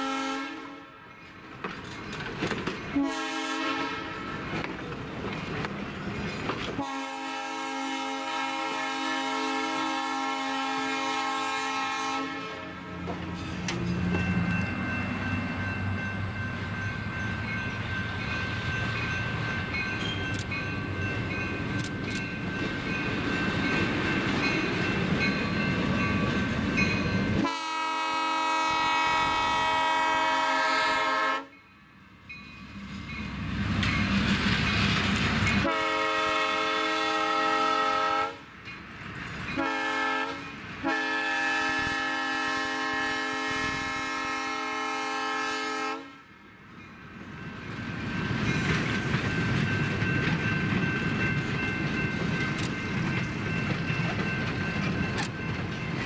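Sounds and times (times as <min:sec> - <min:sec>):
locomotive horn blasts: 0:00.0 - 0:01.0, 0:02.9 - 0:04.3, 0:06.8 - 0:12.9, 0:27.4 - 0:31.6, 0:35.6 - 0:38.4, 0:39.6 - 0:46.3
train engine and wheels rumbling: 0:00.0 - 0:56.0.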